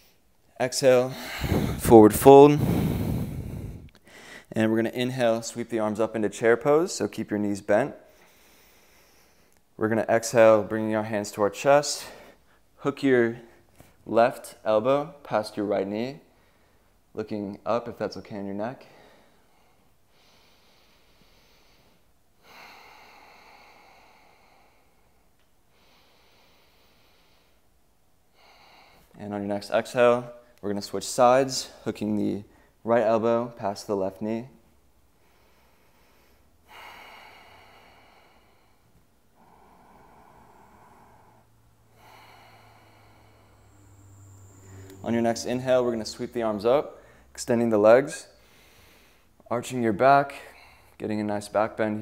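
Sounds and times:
breathing through the nose: 1.1 - 1.9, 2.5 - 4.5, 18.9 - 27.6, 35.2 - 45.1, 48.4 - 49.4.

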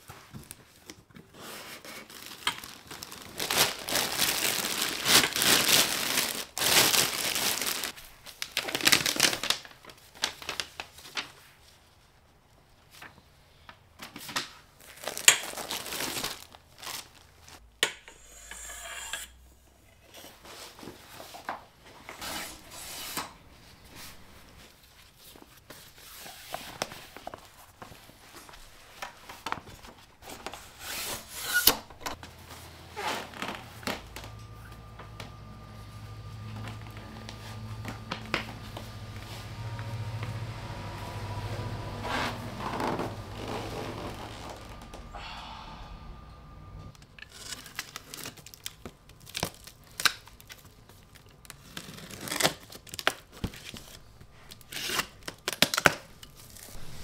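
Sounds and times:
plastic wrapping crinkling: 0.1 - 11.8, 14.1 - 17.6, 42.4 - 45.1, 47.0 - 57.0.

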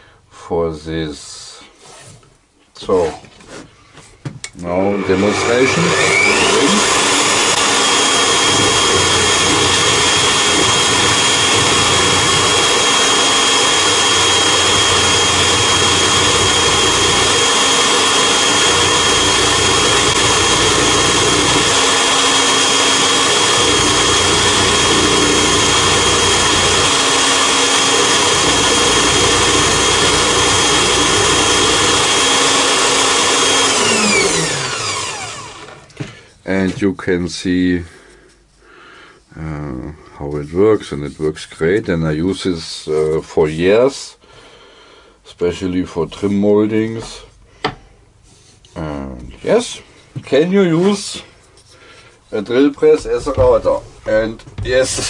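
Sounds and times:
router bit cutting wood: 4.7 - 35.9
drill press motor whining: 4.8 - 36.1.

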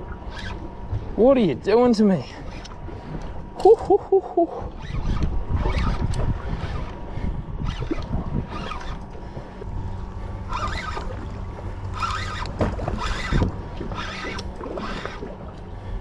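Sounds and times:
low steady hum: 0.0 - 16.0
wind rumble on microphone: 2.4 - 16.0
fishing reel winding: 4.7 - 7.0, 7.6 - 9.1, 10.5 - 11.1, 11.9 - 15.2.

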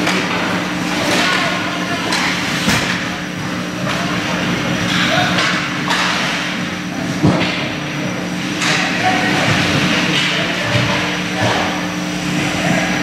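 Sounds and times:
low hum of rink: 0.0 - 13.0
sticks clacking on puck: 4.9 - 6.4.

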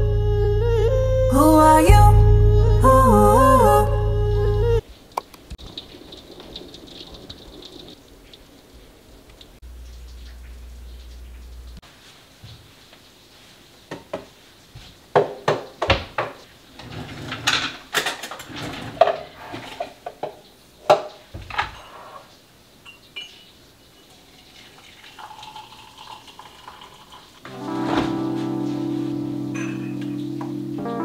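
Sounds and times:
liquid pouring into mug: 24.1 - 27.5
crockery and cutlery clinking: 29.6 - 30.2.

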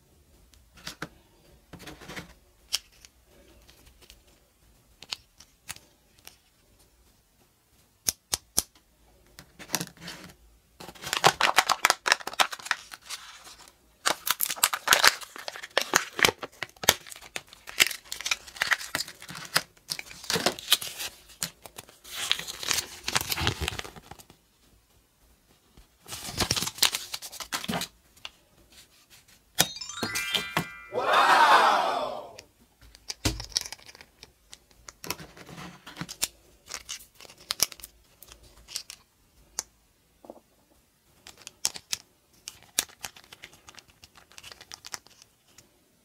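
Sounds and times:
wrapper crinkling and tearing: 10.9 - 24.3, 26.1 - 27.8, 42.5 - 45.2
brief pitched sound: 29.6 - 32.4
plastic toy pieces clicking: 41.2 - 45.3.

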